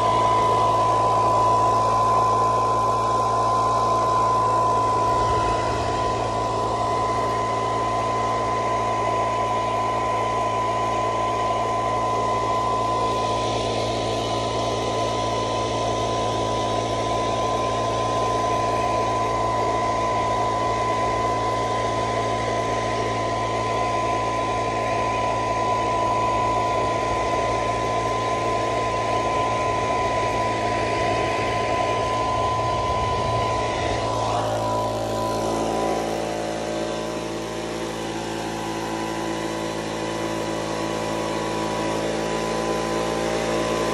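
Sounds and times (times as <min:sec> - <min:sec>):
air blower whining: 0:00.0 - 0:43.9
low motor hum: 0:00.0 - 0:43.9
rushing air: 0:04.3 - 0:08.8, 0:30.4 - 0:37.0.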